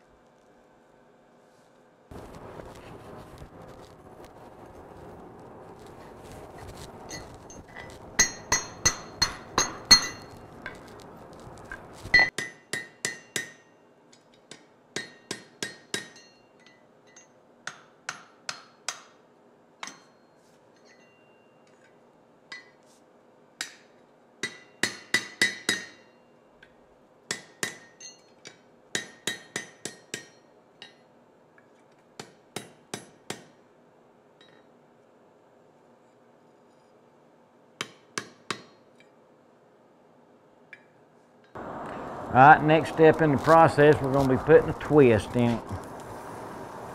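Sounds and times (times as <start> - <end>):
low rushing noise: 2.1 - 8.2, 41.6 - 46.9
hammer ringing on anvil: 8.2 - 10.3.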